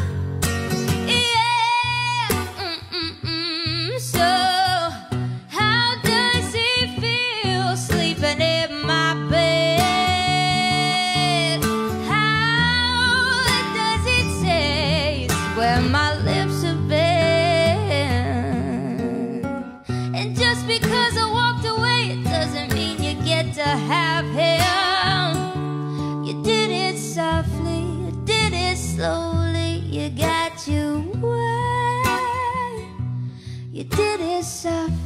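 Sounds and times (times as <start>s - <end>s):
acoustic guitar: 0.0s - 35.0s
woman singing with vibrato: 1.0s - 33.0s, 33.7s - 35.0s.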